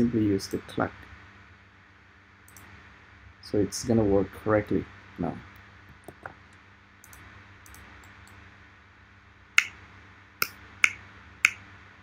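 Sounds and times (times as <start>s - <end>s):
faint click: 2.4s - 2.7s, 6.5s - 8.4s.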